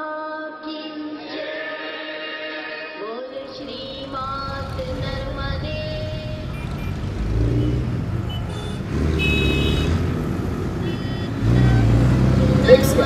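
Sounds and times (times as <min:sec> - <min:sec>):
street noise: 0:03.4 - 0:13.0
vehicle engine rumbling: 0:03.6 - 0:13.0.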